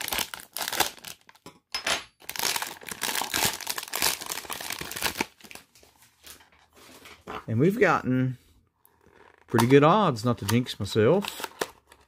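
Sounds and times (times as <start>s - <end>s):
plastic bag crinkling: 2.2s - 5.8s.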